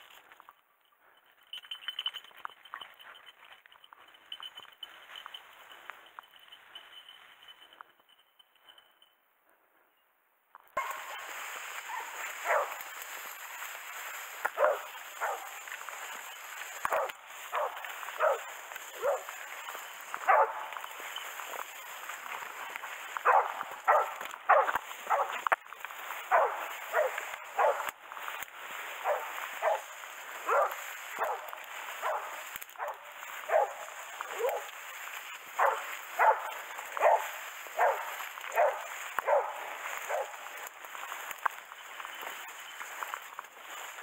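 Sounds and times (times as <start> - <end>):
hounds barking: 10.8 - 43.2.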